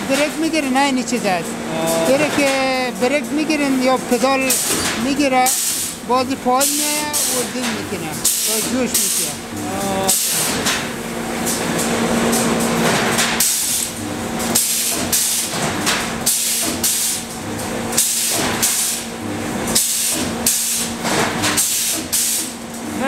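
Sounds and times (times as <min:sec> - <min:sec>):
steady machine hum: 0:00.0 - 0:23.0.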